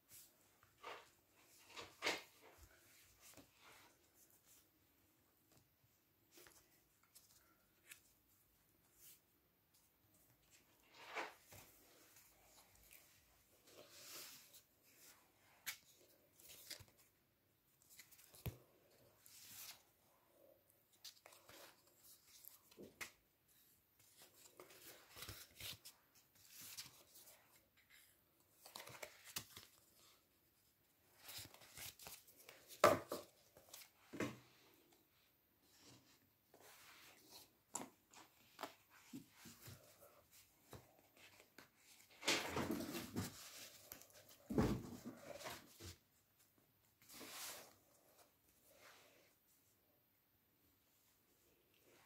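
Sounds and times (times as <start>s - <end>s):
paper rustling: 24.0s - 30.2s, 31.1s - 34.3s.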